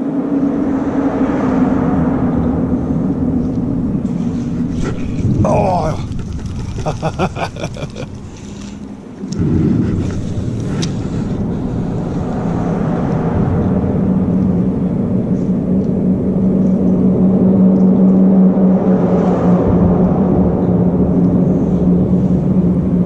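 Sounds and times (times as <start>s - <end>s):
engine running: 0.0s - 23.0s.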